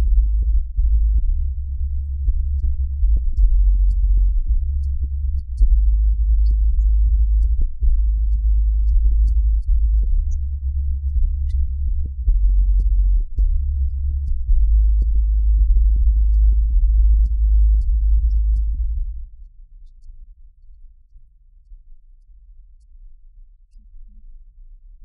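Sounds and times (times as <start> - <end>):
electronic music with deep bass: 0.0 - 19.2.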